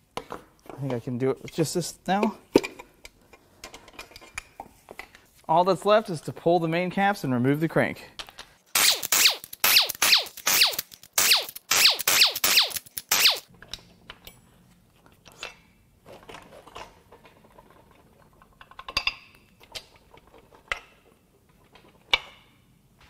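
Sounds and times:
ratchet clicking: 8.8 - 13.5.

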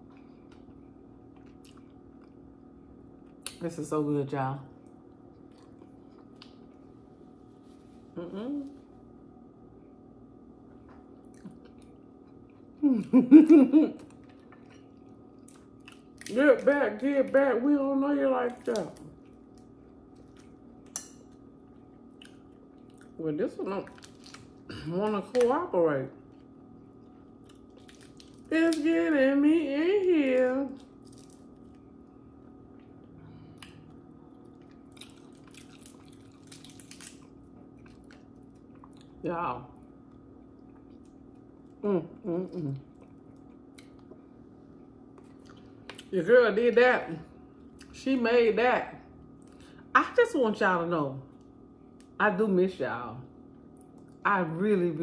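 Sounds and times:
soft chewing: 0.0 - 3.6, 4.7 - 9.0, 10.6 - 16.4, 18.5 - 23.2, 26.1 - 28.5, 30.7 - 39.2, 39.8 - 46.1
low steady hum: 0.0 - 55.0
crab shell cracking: 34.9 - 38.3.

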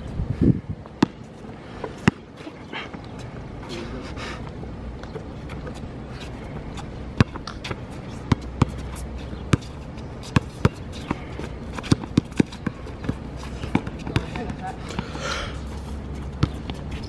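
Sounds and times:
outdoor background: 0.0 - 17.0
basketball bouncing on court: 0.9 - 1.3, 2.0 - 2.3, 7.2 - 15.1, 16.2 - 16.8.

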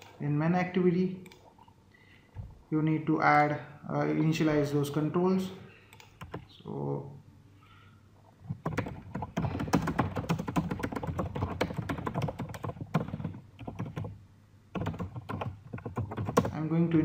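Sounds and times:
typing on keyboard: 5.9 - 6.5, 8.5 - 14.2, 14.8 - 16.6.

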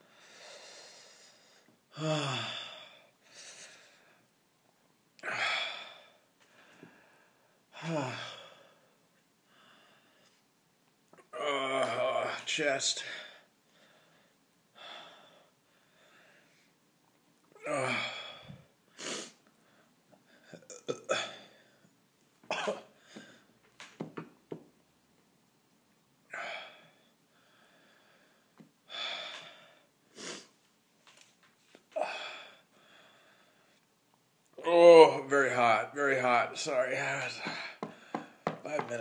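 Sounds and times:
man breathing hard: 0.0 - 4.2, 26.3 - 30.5, 37.4 - 38.9
man groaning: 7.8 - 8.4, 11.3 - 12.5, 17.6 - 18.3.

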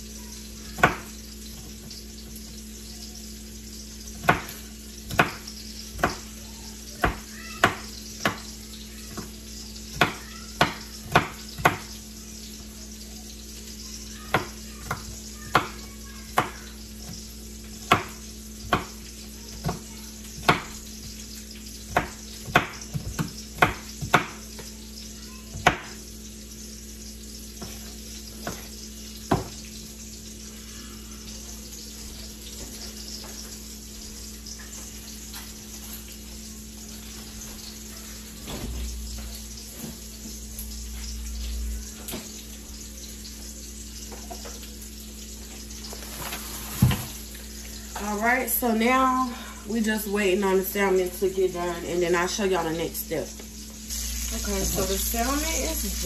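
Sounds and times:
fish sizzling in a skillet: 0.0 - 56.0
knife chopping on plastic board: 0.8 - 1.7, 4.2 - 6.3, 7.0 - 8.5, 9.9 - 12.0, 14.3 - 20.8, 21.9 - 24.4, 25.5 - 26.0, 27.6 - 28.7, 29.3 - 29.6.

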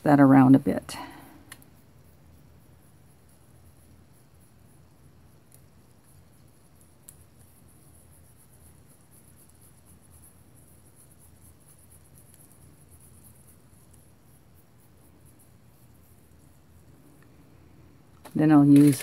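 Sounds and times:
wipe rubbing on clay: 1.7 - 16.9.

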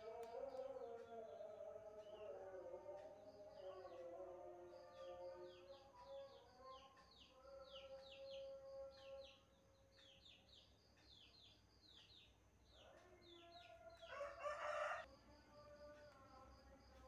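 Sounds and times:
rooster crowing: 13.2 - 15.1.

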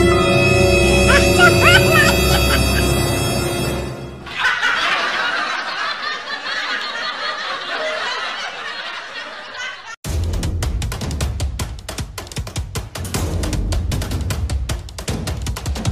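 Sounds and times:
person laughing: 1.1 - 3.1
drum music: 10.0 - 15.9.

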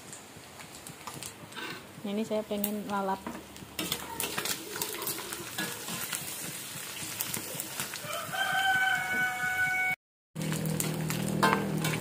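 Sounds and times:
fish frying in oil: 2.6 - 9.8, 10.4 - 12.0
spatula stirring in wok: 3.2 - 9.4
rooster crowing: 8.0 - 10.0.

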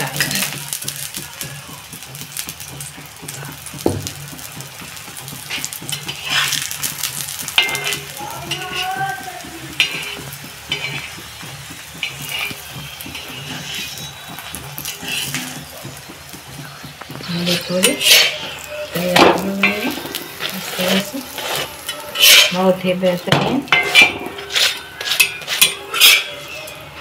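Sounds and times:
oil sizzling: 0.0 - 27.0
metal spatula scraping griddle: 2.0 - 27.0.

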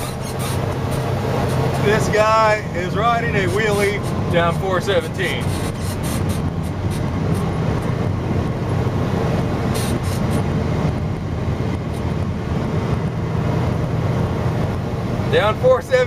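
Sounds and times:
car road and engine rumble: 0.0 - 16.0.

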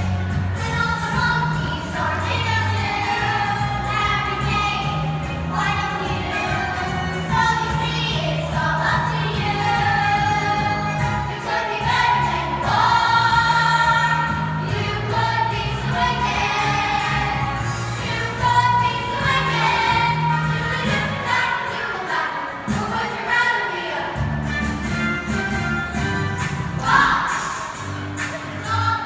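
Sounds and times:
youth choir singing: 0.0 - 24.3, 26.8 - 29.0
instrumental accompaniment: 24.2 - 29.0.

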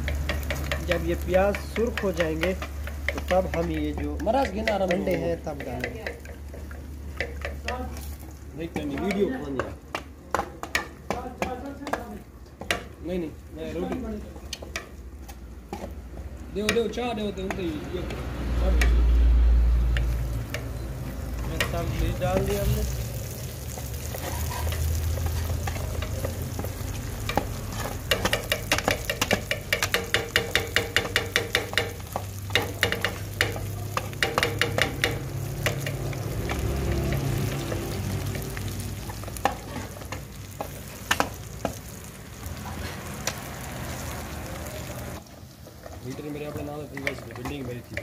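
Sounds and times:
onions sizzling in pan: 0.0 - 48.0
metal ladle scraping pan: 23.7 - 31.8.

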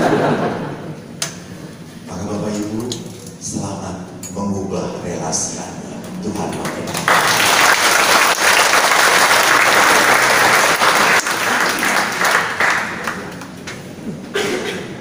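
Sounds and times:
audience applauding: 6.1 - 14.0.

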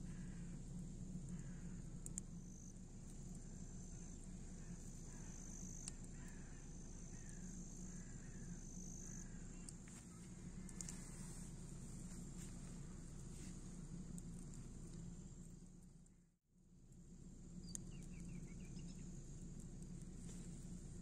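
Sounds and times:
insects trilling: 0.0 - 16.0
low steady hum: 0.0 - 21.0
bird chirps: 17.6 - 19.1.

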